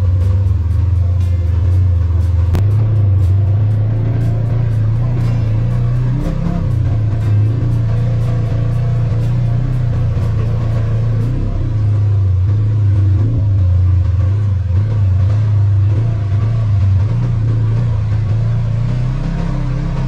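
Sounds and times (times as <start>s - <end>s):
off-road vehicle engine droning: 0.0s - 20.0s.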